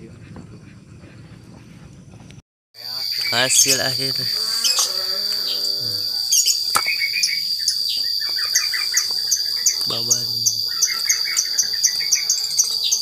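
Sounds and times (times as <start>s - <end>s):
bird chirping: 2.8s - 13.0s
high-pitched insect drone: 2.8s - 13.0s.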